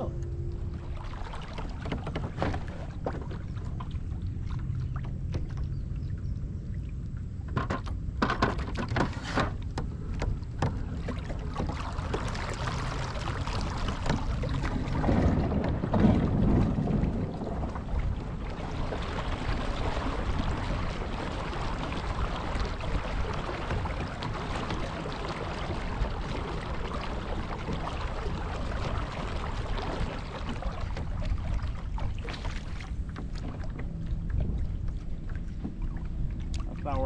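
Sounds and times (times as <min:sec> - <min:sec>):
waves lapping against a hull: 0:00.0 - 0:37.0
wind buffeting the microphone: 0:09.8 - 0:37.0.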